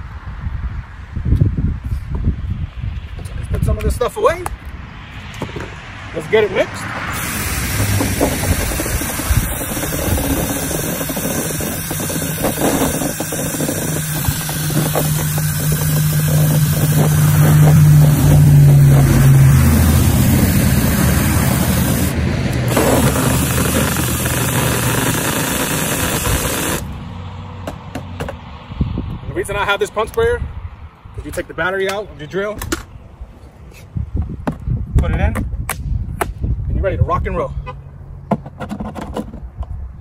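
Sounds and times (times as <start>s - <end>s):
cordless drill mixing liquid: 7.1s - 26.9s.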